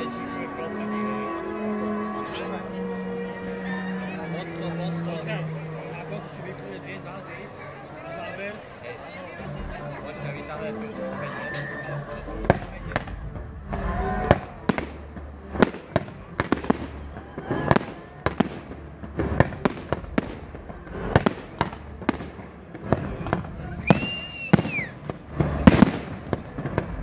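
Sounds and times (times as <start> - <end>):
fireworks bangs and pops: 11.6 - 27.0.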